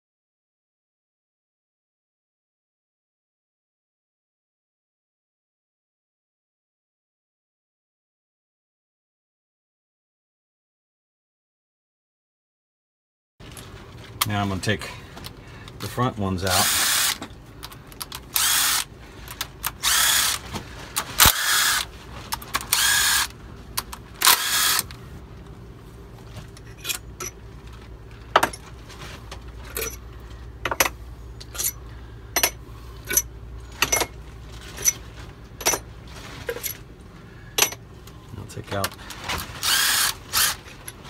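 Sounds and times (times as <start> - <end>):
impact wrench hammering: 32.4 - 34.1.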